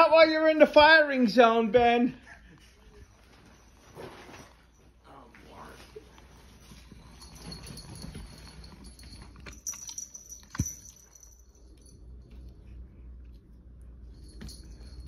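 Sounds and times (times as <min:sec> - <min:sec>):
faint high ringing: 0:03.1 - 0:15.0.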